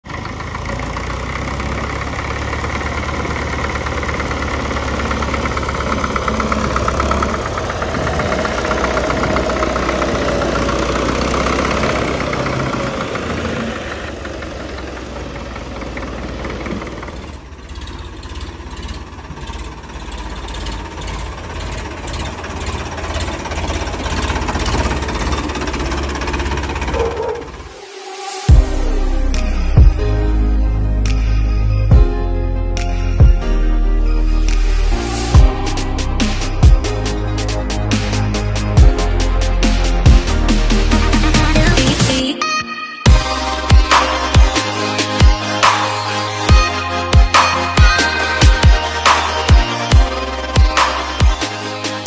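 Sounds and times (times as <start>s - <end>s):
tractor engine knocking chug: 0.0s - 27.7s, 35.4s - 42.1s
tractor engine running: 0.0s - 42.4s, 43.1s - 52.0s.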